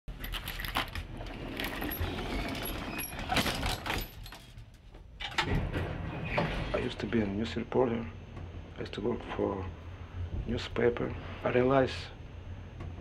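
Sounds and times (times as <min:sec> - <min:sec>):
elevator mechanical rattle: 0:00.1 - 0:07.9
steady low hum: 0:00.1 - 0:13.0.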